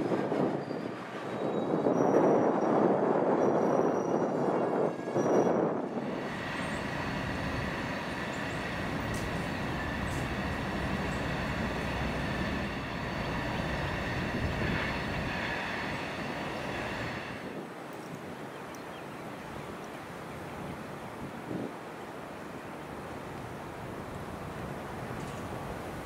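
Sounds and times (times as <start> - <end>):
train wheels rumbling on rails: 0.0 - 18.2.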